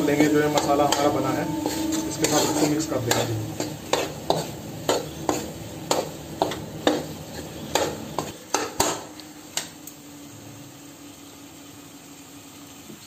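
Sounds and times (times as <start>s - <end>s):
metal ladle scraping a pan: 0.0s - 8.4s
faint sizzle: 0.0s - 13.0s.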